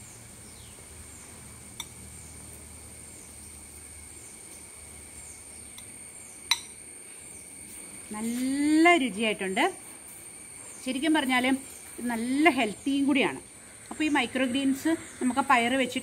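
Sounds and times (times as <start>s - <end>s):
high insect drone: 0.0s - 16.0s
metal spoon clinking glass bowl: 6.5s - 6.7s.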